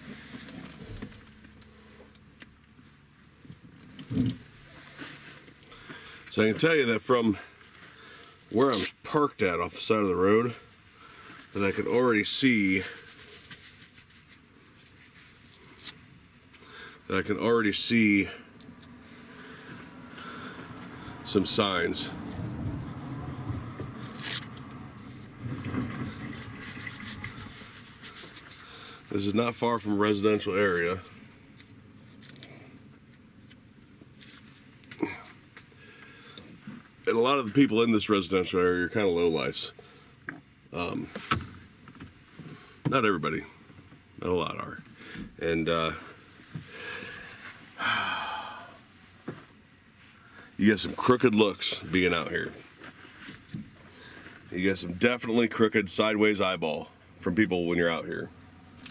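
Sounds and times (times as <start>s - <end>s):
fabric rustling and rubbing: 13.0s - 15.5s, 24.0s - 28.6s
short tearing rip: 24.0s - 24.6s.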